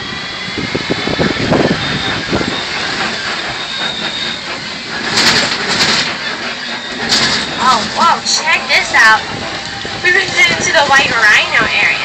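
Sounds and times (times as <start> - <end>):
truck body rattling: 2.0 - 8.3
road noise: 4.9 - 12.0.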